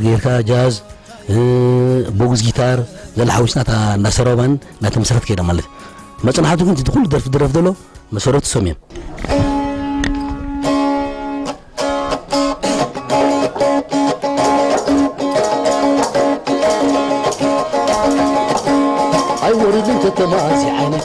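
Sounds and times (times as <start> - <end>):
plucked string instrument music: 4.2 - 8.2, 8.8 - 21.0.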